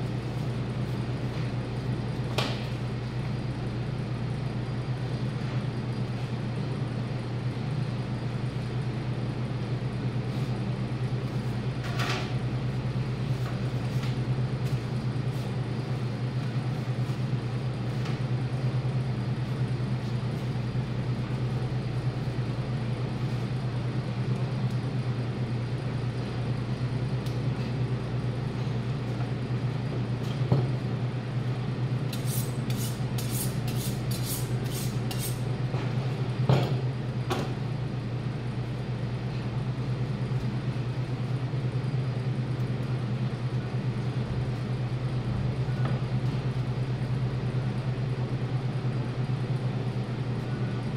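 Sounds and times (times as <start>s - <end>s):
steady low hum: 0.0s - 50.9s
knife on honing steel: 32.1s - 35.4s.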